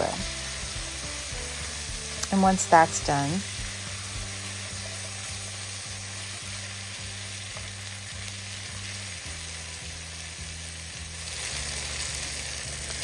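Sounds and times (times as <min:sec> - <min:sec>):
vegetables sizzling in oil: 0:00.0 - 0:13.0
background music beat: 0:00.1 - 0:05.6.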